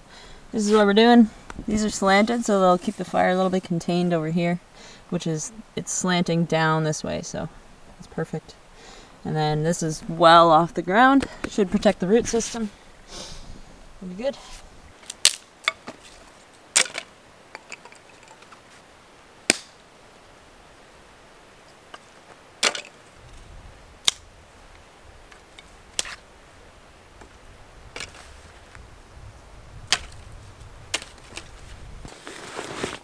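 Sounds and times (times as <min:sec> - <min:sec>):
dry sticks snapping: 0:15.0 - 0:16.0, 0:16.8 - 0:18.5, 0:19.5 - 0:19.8, 0:22.6 - 0:23.0, 0:24.0 - 0:24.3, 0:25.3 - 0:26.2, 0:29.9 - 0:30.2, 0:30.9 - 0:31.6.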